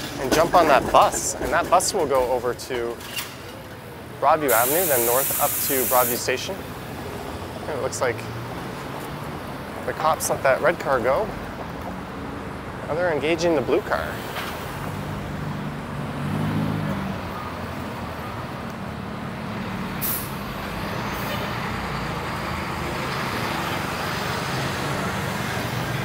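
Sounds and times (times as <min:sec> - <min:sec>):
street traffic: 0:00.0 - 0:26.0.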